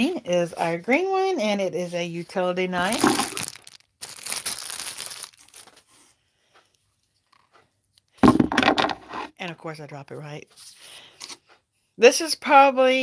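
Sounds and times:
plastic packaging crinkling: 2.7 - 6.0
loud thump: 8.2 - 9.0.

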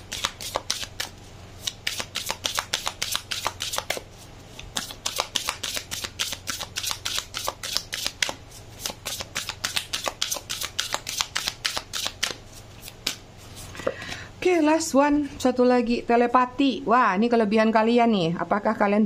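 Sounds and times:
cards being shuffled: 0.0 - 13.9.

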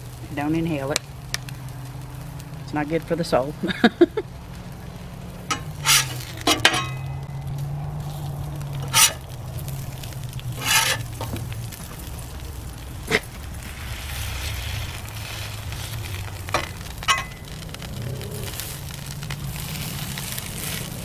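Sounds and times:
meat sizzling on griddle: 0.0 - 21.0
metal spatula scraping griddle: 5.5 - 11.8, 13.0 - 17.9.

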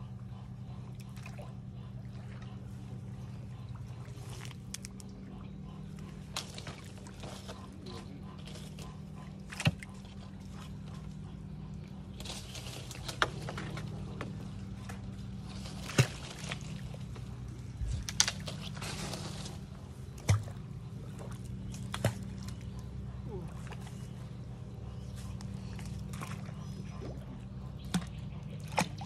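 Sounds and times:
steady low hum: 0.0 - 29.0
pond water splashing: 6.0 - 11.1, 11.8 - 24.2, 25.2 - 29.0.

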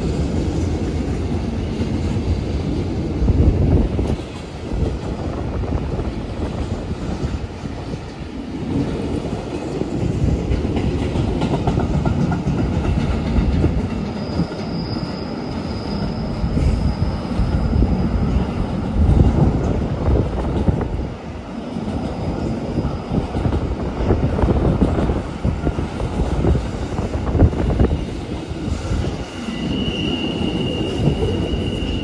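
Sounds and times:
freight train wheels rolling: 0.0 - 32.0
high-pitched wheel squeal: 14.1 - 18.5, 29.3 - 32.0.

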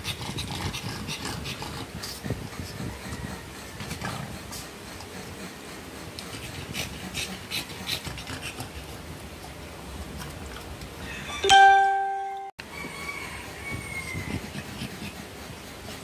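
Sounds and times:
dog panting: 0.0 - 10.7, 14.1 - 16.0
bell-like ding: 11.4 - 12.5.

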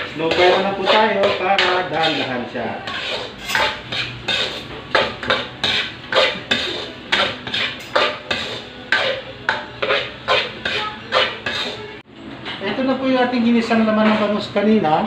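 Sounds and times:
spatula scraping a wok: 0.0 - 12.0.

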